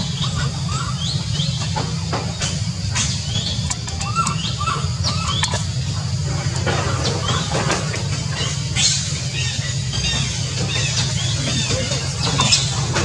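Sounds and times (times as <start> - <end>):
steady low rumble: 0.0 - 13.0
high animal chirps and squeaks: 3.0 - 5.8.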